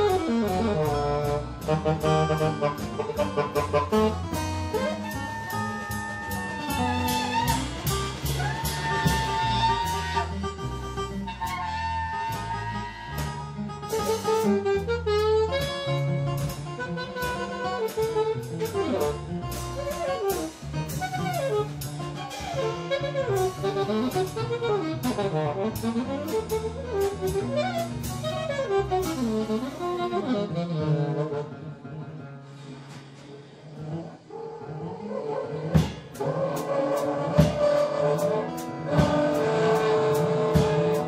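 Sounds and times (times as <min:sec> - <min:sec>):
drums with cymbal strokes: 0:00.0 - 0:10.9, 0:13.9 - 0:22.5, 0:23.3 - 0:30.2, 0:35.8 - 0:41.0
saxophone melody: 0:00.0 - 0:32.1, 0:36.6 - 0:41.0
bass notes: 0:00.0 - 0:32.4, 0:35.6 - 0:41.0.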